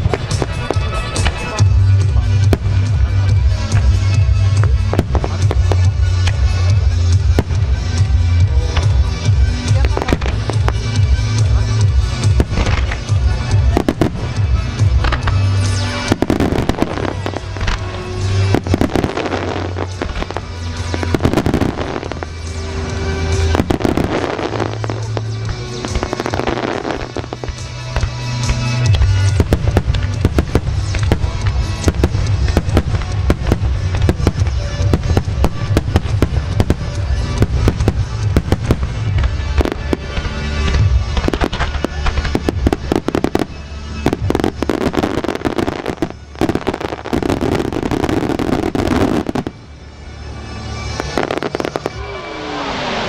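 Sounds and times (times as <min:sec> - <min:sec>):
fireworks bursting and crackling: 0:00.0 - 0:53.0
music: 0:00.0 - 0:53.0.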